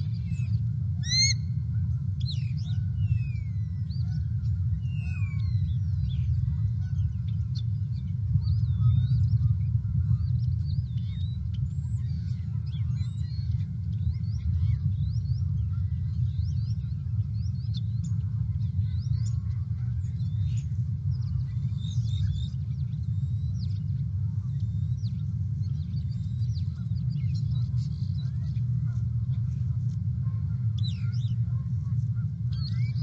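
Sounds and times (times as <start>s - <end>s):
small birds chirping: 0.0s - 33.0s
steady low rumble: 0.0s - 33.0s.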